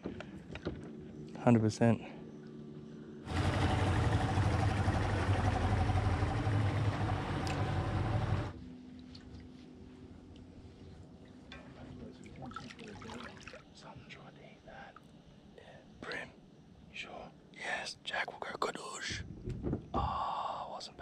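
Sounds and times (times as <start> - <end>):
faint steady hum: 0.0 - 21.0
boat motor running: 3.2 - 8.6.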